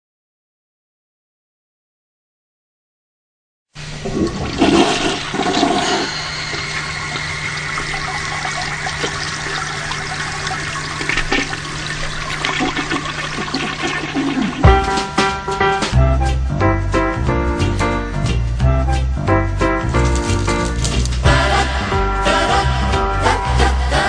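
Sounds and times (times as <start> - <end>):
toilet flushing: 3.8 - 15.9
low hum: 4.0 - 13.6.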